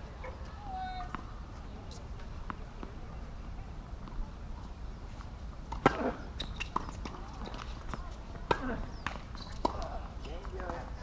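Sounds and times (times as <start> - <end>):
tennis ball bouncing on hardcourt: 5.7 - 10.9.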